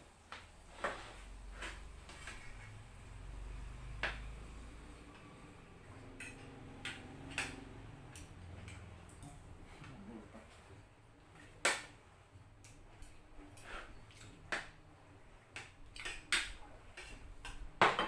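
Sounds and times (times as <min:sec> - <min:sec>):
low steady hum: 0:00.0 - 0:18.0
utensils clinking on plates: 0:06.0 - 0:06.6.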